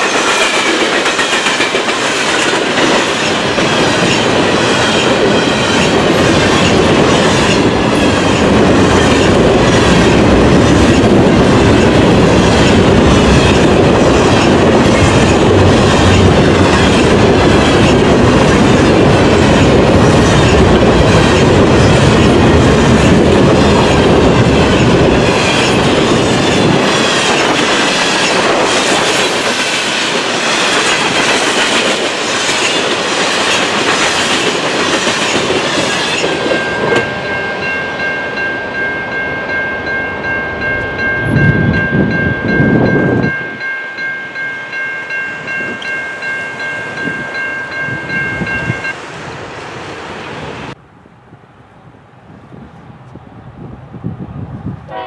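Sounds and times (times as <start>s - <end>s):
freight train wheels clattering: 0.0s - 39.0s
level crossing bell ringing: 36.5s - 49.0s.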